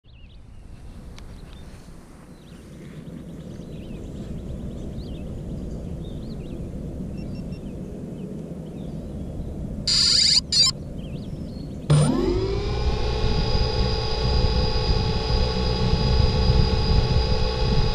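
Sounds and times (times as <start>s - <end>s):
wind rumble on microphone: 0.1s - 9.9s, 10.7s - 17.9s
drone electronic tone: 9.9s - 10.7s, 11.9s - 17.9s
small birds chirping: 9.9s - 11.9s.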